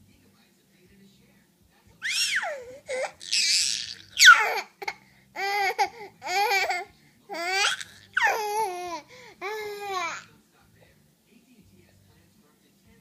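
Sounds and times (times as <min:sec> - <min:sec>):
baby laughing and squealing: 0:02.0 - 0:10.2.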